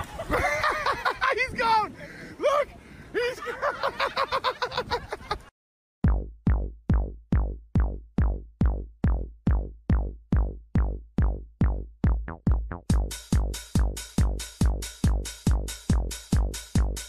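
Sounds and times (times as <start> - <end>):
electronic drum-machine beat: 6.0 - 17.0.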